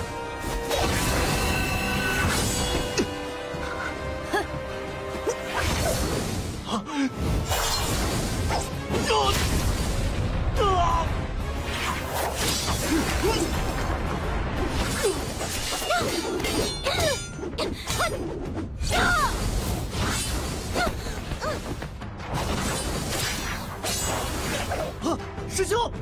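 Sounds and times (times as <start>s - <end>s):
dramatic background music: 0.0s - 26.0s
magical blasts: 7.2s - 10.5s.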